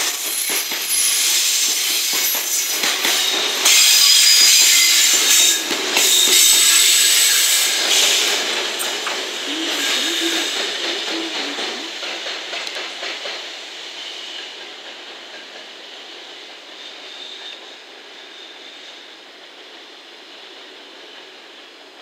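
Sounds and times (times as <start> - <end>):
freight train running: 0.0 - 22.0
faint high wheel squeal: 0.3 - 8.9, 16.6 - 19.4.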